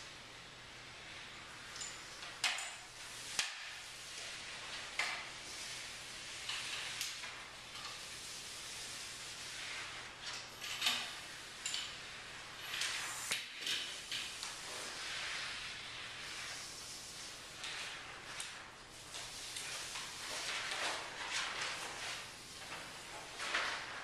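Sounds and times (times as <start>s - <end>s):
paper rustling and scraping: 13.8s - 24.0s.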